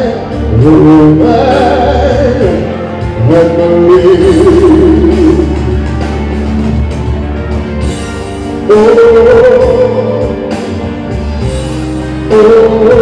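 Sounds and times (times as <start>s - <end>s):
pop ballad over loudspeakers: 0.0s - 13.0s.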